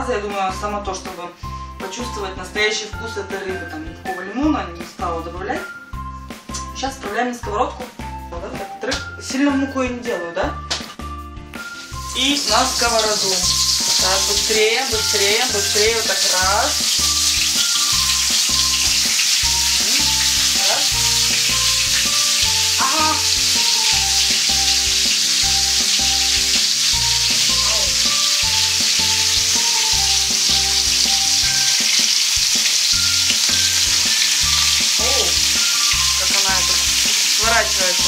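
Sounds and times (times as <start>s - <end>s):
fish sizzling in hot oil: 11.6s - 38.0s.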